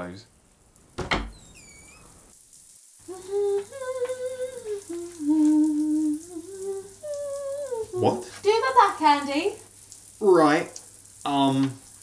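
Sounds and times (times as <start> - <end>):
shower water hissing: 0.0 - 12.0
person humming: 3.1 - 8.3.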